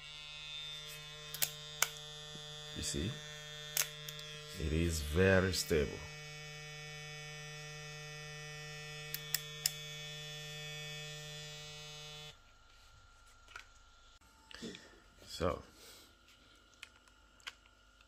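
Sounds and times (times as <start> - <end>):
hair clipper humming: 0.0 - 14.3.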